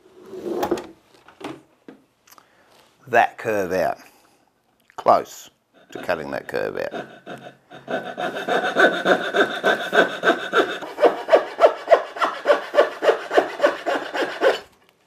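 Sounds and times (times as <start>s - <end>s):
hand saw cutting wood: 5.8s - 14.7s.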